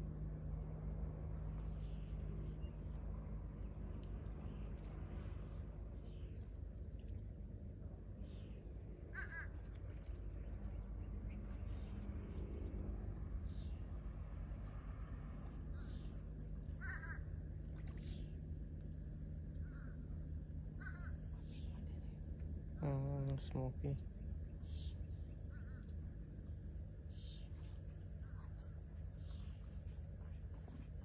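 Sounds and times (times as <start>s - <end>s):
low rumble: 0.0s - 31.0s
bird calls: 8.2s - 12.7s, 15.7s - 18.4s, 19.5s - 22.2s, 22.8s - 26.0s, 27.1s - 31.0s.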